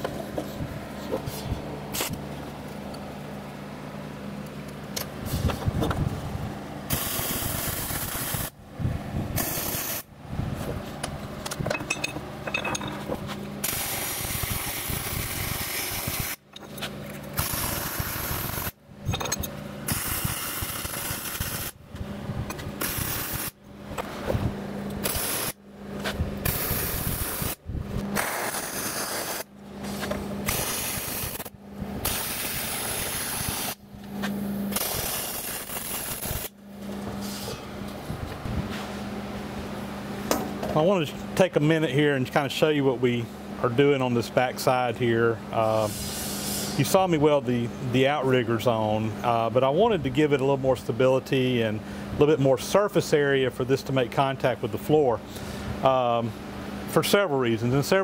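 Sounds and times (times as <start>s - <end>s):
low steady hum: 0.0s - 58.0s
welder arc crackling: 17.4s - 18.8s, 19.9s - 21.8s, 22.8s - 23.6s, 26.4s - 27.6s, 34.7s - 36.6s.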